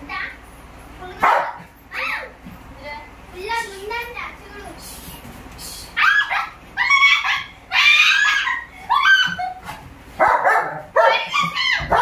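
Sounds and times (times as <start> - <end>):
dog yelping and barking: 1.2 - 1.6, 6.0 - 12.0.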